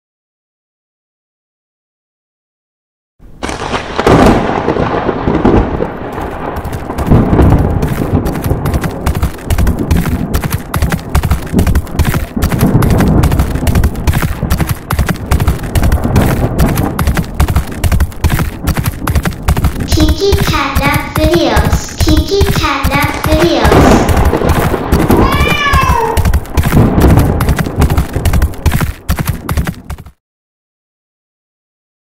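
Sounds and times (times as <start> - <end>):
gunfire-like cracks: 3.4 - 30.2
deep thunder-like rumble: 3.6 - 19.9, 23.6 - 29.9
galloping horse hooves: 5.8 - 30.2.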